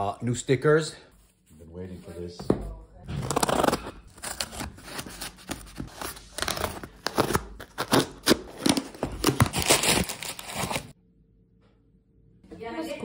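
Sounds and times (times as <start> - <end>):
cardboard box being unpacked: 3.2 - 10.9.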